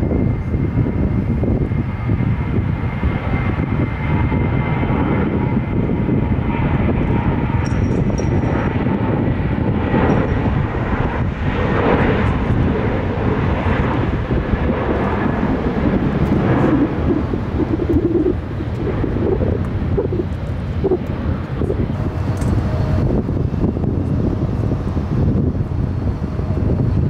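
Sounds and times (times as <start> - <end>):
jet engines running: 0.0 - 27.0.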